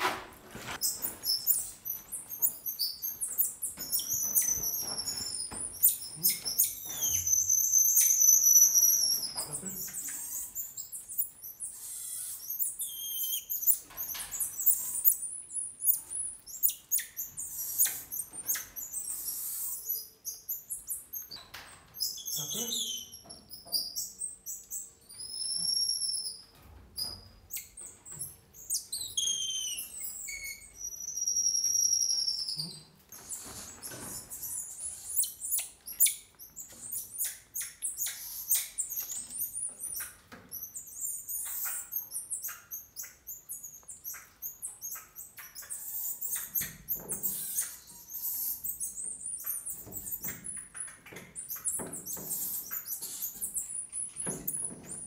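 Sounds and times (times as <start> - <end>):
monkeys chirping and twittering: 0.7 - 55.0
monkeys whistling: 1.2 - 13.8, 28.6 - 32.9.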